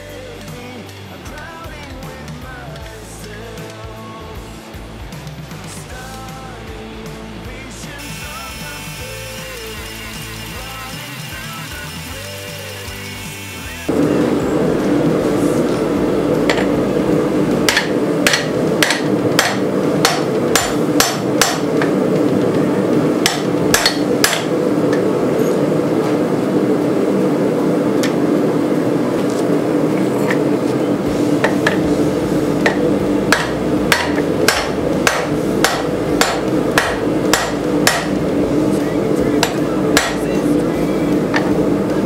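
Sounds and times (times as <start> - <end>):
steady drone: 0.0 - 42.0
hammer striking metal on anvil: 17.6 - 21.9, 23.2 - 24.5, 32.6 - 38.2, 39.4 - 40.3.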